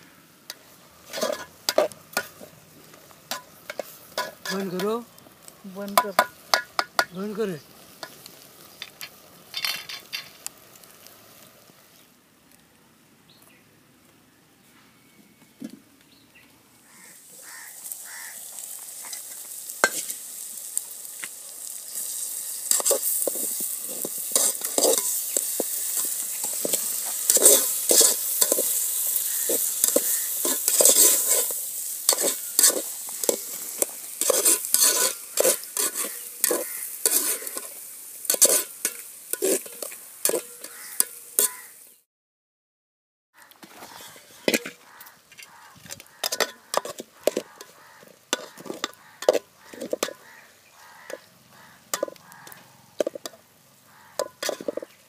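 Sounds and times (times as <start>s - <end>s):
curry sizzling in pot: 0.0s - 12.2s, 16.8s - 42.1s, 43.4s - 55.0s
metal spoon scraping pot: 1.0s - 2.5s, 3.3s - 4.9s, 22.6s - 41.7s, 43.8s - 50.3s, 51.9s - 53.4s, 54.1s - 55.0s.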